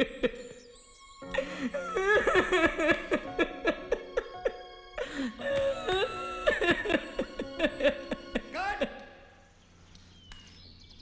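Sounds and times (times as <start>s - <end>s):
person sobbing and wailing: 1.3s - 9.2s.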